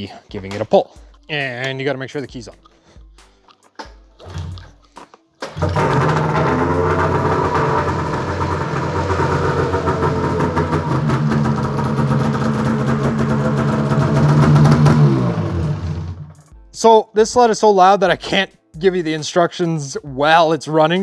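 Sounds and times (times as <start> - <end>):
recoil rope pull: 5.4 - 16.4
two-stroke engine running: 5.5 - 16.4.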